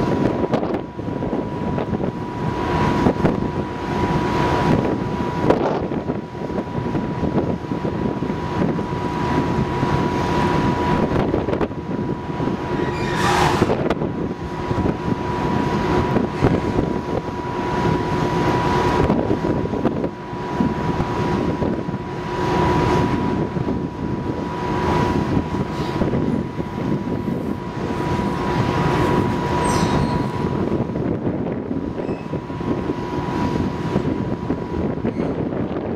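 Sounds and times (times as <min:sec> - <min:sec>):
ferry engine rumble and hum: 0:00.0 - 0:35.9
steady high tone: 0:29.4 - 0:31.0.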